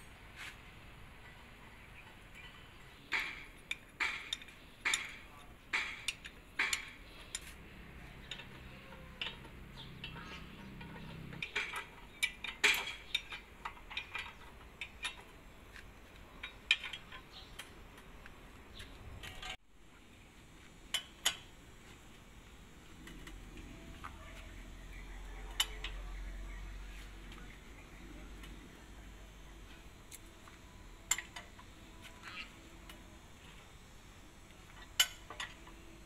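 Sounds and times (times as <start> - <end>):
wrench clinking on metal bolts: 2.1 - 7.5, 8.1 - 15.5, 16.3 - 18.1, 31.0 - 33.0, 34.7 - 35.8.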